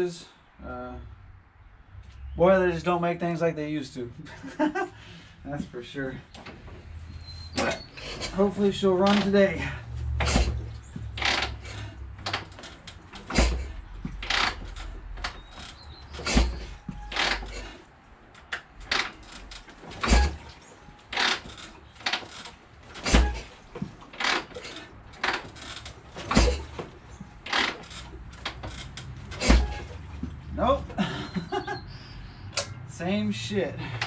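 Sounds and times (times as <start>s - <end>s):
metal clicks and clanks: 7.5s - 9.5s, 10.1s - 30.4s
engine turning over: 7.6s - 17.8s, 18.4s - 30.2s
motorcycle kick-start thuds: 10.2s - 17.8s, 18.4s - 30.3s.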